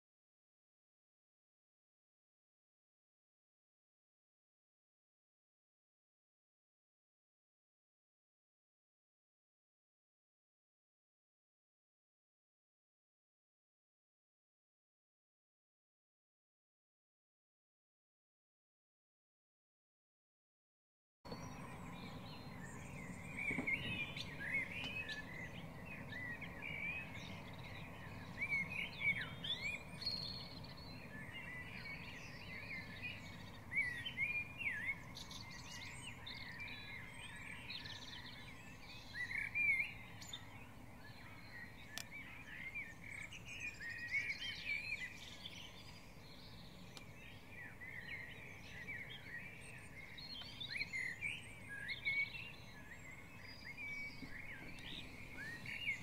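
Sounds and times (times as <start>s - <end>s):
songbirds singing: 21.3s - 56.0s.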